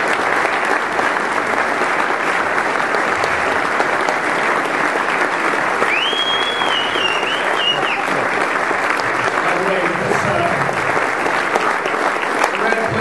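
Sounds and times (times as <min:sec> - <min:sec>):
audience applauding: 0:00.0 - 0:13.0
high whistle: 0:05.9 - 0:08.0.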